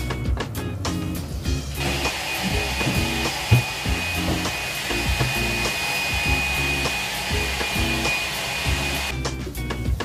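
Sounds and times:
background music with steady beat: 0:00.0 - 0:10.0
whirring with high whine: 0:01.6 - 0:09.1.

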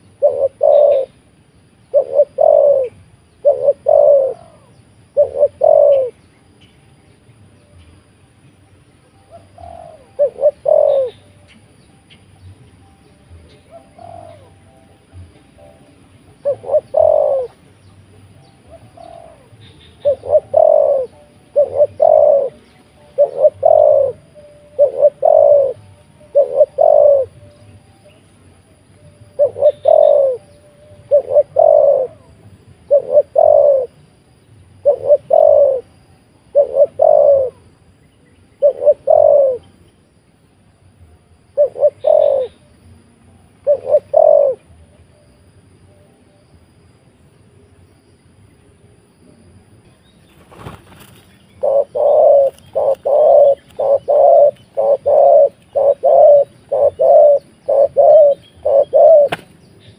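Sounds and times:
dove cooing: 0:00.0 - 0:01.3, 0:01.9 - 0:06.2, 0:09.2 - 0:12.4, 0:13.3 - 0:37.8, 0:38.5 - 0:39.8, 0:41.4 - 0:42.8, 0:43.6 - 0:44.9, 0:50.5 - 0:59.9.

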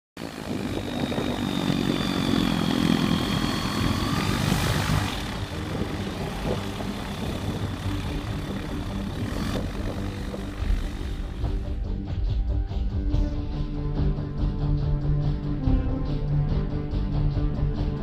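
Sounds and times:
propeller engine droning: 0:00.2 - 0:18.0.

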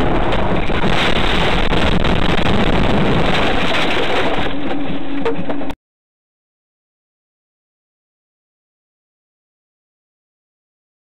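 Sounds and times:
rumbling road and tyre noise: 0:00.0 - 0:05.8.

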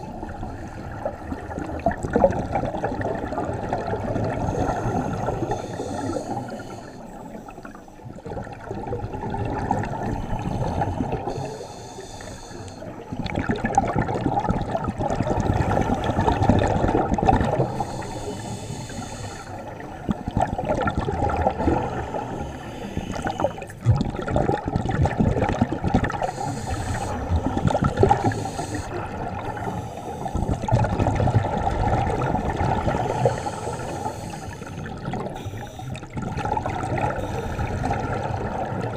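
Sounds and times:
exhaled bubbles rushing: 0:00.0 - 0:05.6, 0:08.1 - 0:11.3, 0:13.1 - 0:17.9, 0:19.7 - 0:22.4, 0:23.1 - 0:38.9
regulator inhale hiss: 0:04.4 - 0:08.1, 0:10.1 - 0:13.0, 0:17.6 - 0:19.9, 0:21.8 - 0:23.8, 0:26.2 - 0:30.7, 0:32.8 - 0:36.2, 0:37.2 - 0:38.1.

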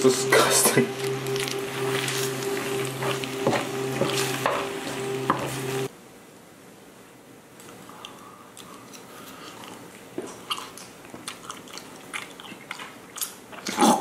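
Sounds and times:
person chewing food: 0:07.6 - 0:14.0.

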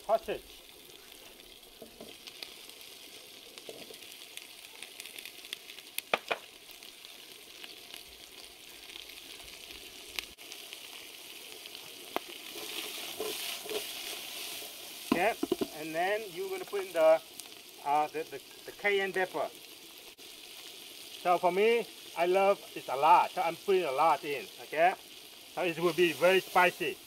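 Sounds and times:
sausage sizzling in hot oil: 0:00.0 - 0:27.0.

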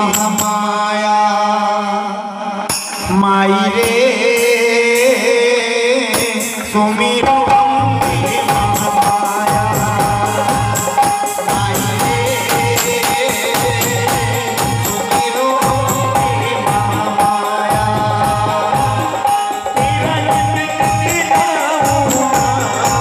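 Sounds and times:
harmonium: 0:00.0 - 0:23.0
man singing: 0:00.0 - 0:23.0
hand drums playing rhythm: 0:06.1 - 0:23.0.

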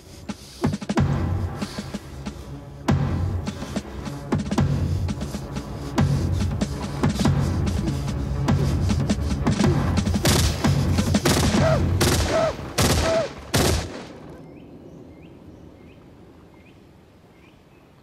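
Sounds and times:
submachine gun firing bursts: 0:10.2 - 0:14.1
bird chirping faintly: 0:14.2 - 0:18.0.

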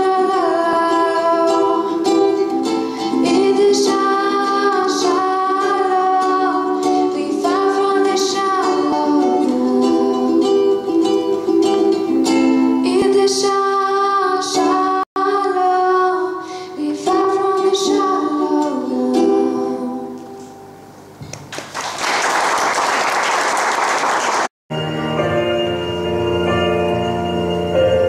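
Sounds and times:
ukulele strumming: 0:00.0 - 0:15.0, 0:16.8 - 0:20.7
girl singing: 0:00.0 - 0:20.5
audience applause: 0:21.5 - 0:24.5.

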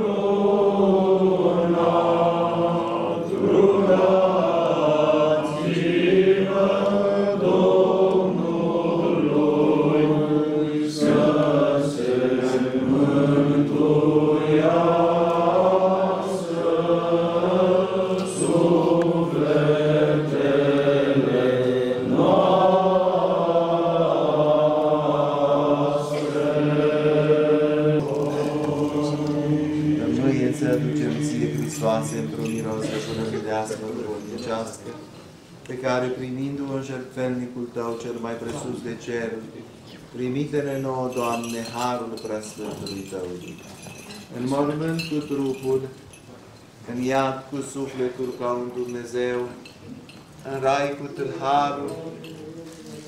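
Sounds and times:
held vocal drone: 0:00.0 - 0:33.9, 0:50.5 - 0:53.0
voices singing liturgical chant: 0:00.0 - 0:39.5, 0:46.9 - 0:53.0.

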